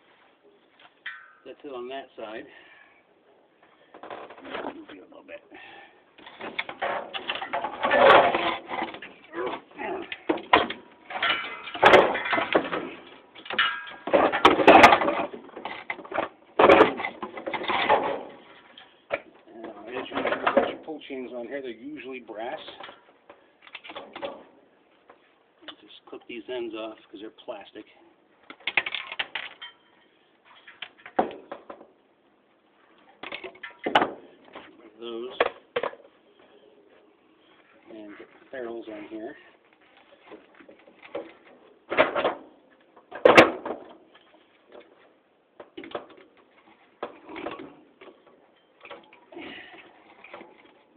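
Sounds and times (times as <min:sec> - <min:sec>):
metal fan parts clattering on concrete: 0:00.9 - 0:01.7, 0:06.2 - 0:19.3, 0:28.5 - 0:31.8, 0:33.1 - 0:36.1.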